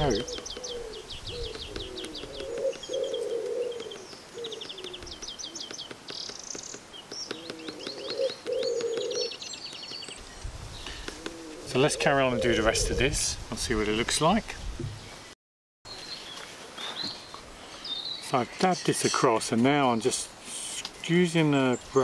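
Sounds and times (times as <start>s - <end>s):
pigeon cooing: 0.0s - 5.7s, 7.3s - 9.4s, 10.9s - 13.1s
small birds chirping: 0.0s - 13.1s, 15.9s - 22.0s.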